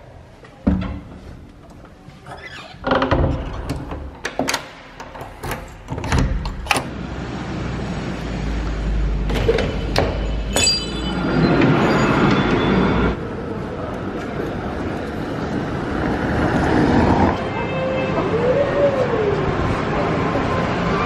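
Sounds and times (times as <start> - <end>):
traffic noise: 0.0 - 21.0
door handle and lock clicking: 2.9 - 6.9
tram rumbling past: 7.0 - 21.0
tram high-pitched squeal: 9.8 - 13.2.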